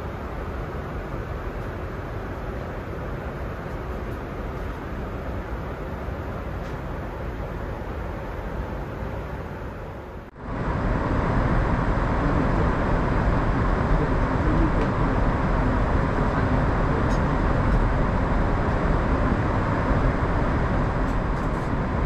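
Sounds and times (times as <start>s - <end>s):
airplane cabin noise: 0.0s - 22.0s.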